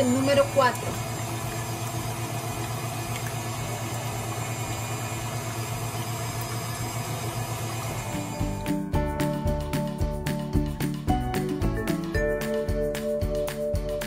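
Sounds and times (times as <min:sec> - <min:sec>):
stand mixer running: 0:00.0 - 0:08.9
music: 0:08.0 - 0:14.0.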